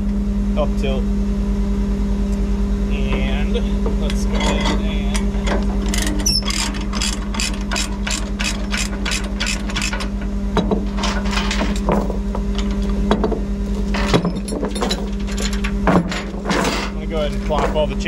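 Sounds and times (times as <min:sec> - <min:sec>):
truck engine humming: 0:00.0 - 0:18.0
chain clanks: 0:04.1 - 0:18.0
ratchet binder clicking: 0:05.2 - 0:10.1.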